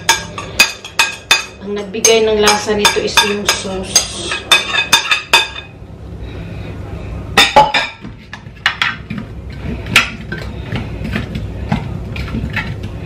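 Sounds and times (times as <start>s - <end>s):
metal spoon clinking on ceramic dish: 0.0s - 5.7s.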